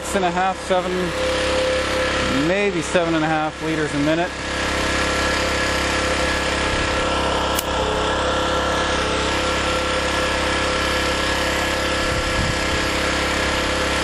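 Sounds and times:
generator engine running: 0:00.0 - 0:14.0
sharp click: 0:07.5 - 0:07.7.

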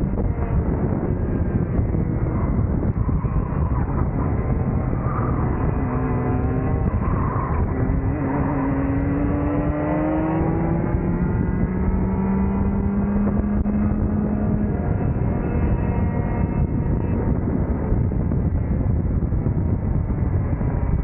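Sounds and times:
kart engine at full power: 0:00.0 - 0:21.0
wind rush on microphone: 0:00.0 - 0:21.0.

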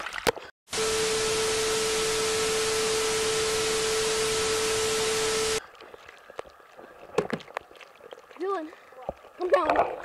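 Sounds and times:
steady tone: 0:00.7 - 0:05.6
white noise hiss: 0:00.7 - 0:05.6.

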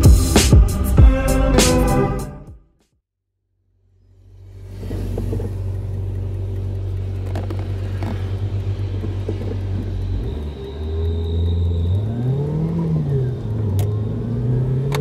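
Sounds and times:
car engine and road noise: 0:03.6 - 0:15.0.

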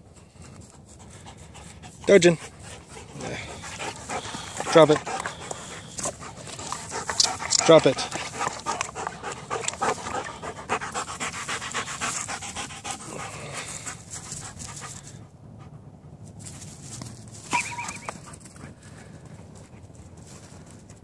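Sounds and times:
dog panting rapidly: 0:00.0 - 0:16.2
short high squeak: 0:17.5 - 0:18.1.

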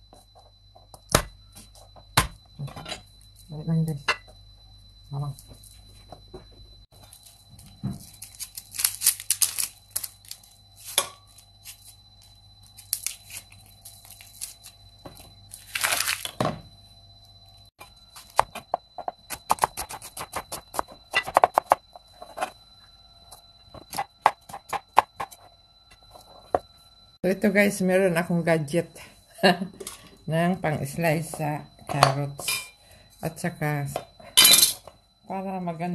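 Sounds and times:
knife peeling vegetable skin: 0:08.2 - 0:11.0.

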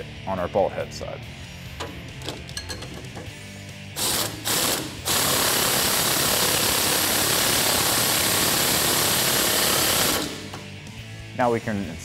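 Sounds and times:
impact wrench hammering: 0:04.0 - 0:10.7.

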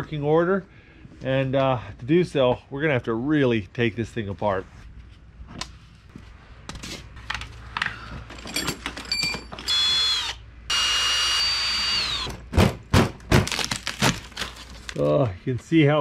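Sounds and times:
tools clinking in bag: 0:08.3 - 0:09.7
power drill whining: 0:09.6 - 0:12.3.

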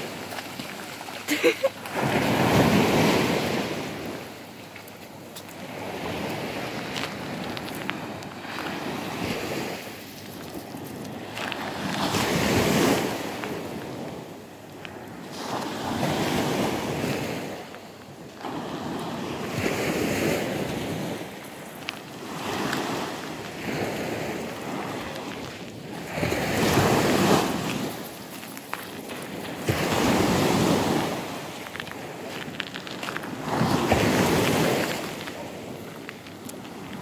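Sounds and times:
waves washing on pebble beach: 0:00.0 - 0:37.0.

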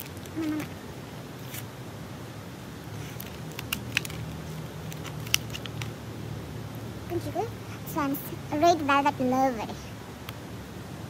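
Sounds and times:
cardboard pack clicks and snaps: 0:03.2 - 0:05.9.

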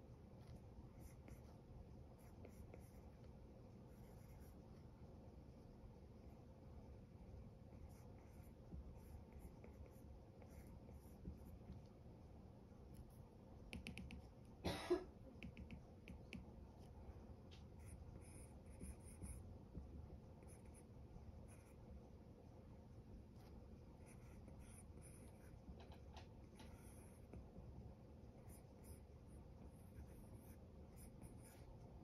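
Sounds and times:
stylus tapping on glass screen: 0:13.7 - 0:14.3.

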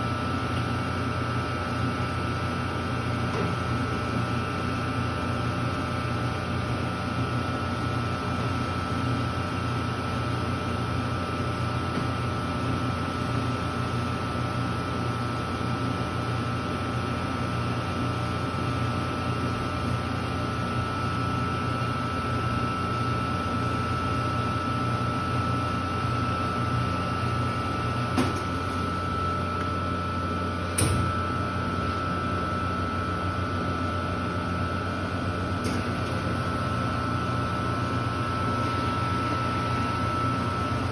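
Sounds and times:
ice cream machine humming: 0:00.0 - 0:40.9.

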